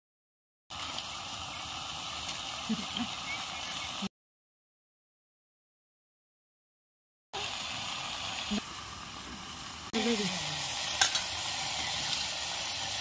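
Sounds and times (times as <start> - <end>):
shrimp sizzling in a pan: 0.7 - 4.0, 7.4 - 13.0.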